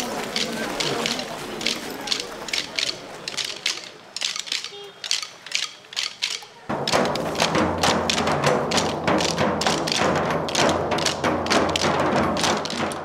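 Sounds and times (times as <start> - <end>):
wooden sticks knocking: 0.0 - 13.0.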